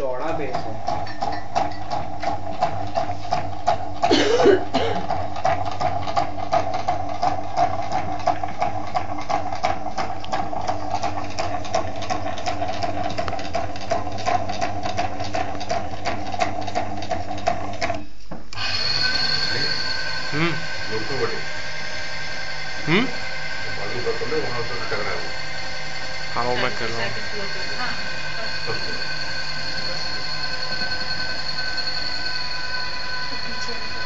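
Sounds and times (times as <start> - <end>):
small electric motor humming: 18.5 - 34.0
higher-pitched whine: 18.6 - 34.0.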